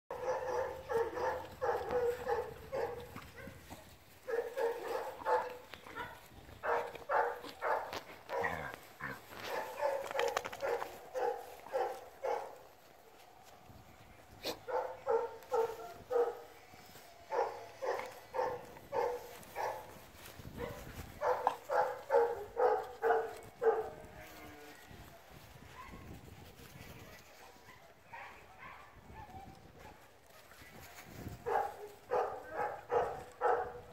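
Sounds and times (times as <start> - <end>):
dog barking: 0.1 - 3.6, 4.2 - 8.6, 9.4 - 12.6, 14.4 - 16.5, 17.3 - 19.9, 20.6 - 24.0, 27.7 - 30.0, 31.4 - 33.9.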